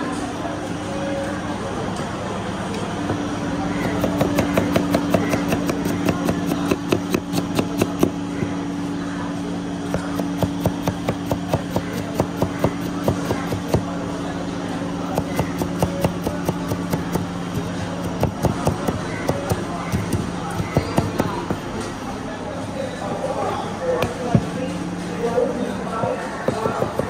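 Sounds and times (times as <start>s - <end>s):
knife chopping on wooden board: 3.8s - 8.2s.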